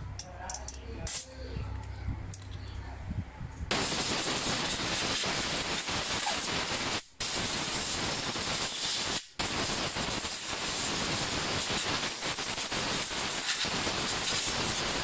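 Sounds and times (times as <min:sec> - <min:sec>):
compressed air blow gun hissing: 0:03.7 - 0:15.0.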